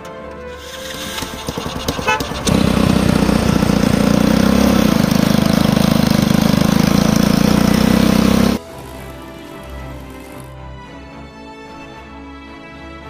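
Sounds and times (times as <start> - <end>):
small tractor engine running: 0.6 - 10.6.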